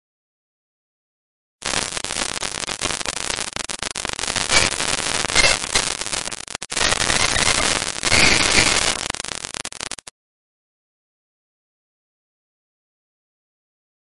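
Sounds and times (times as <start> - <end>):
crackling glitch static: 1.6 - 10.1.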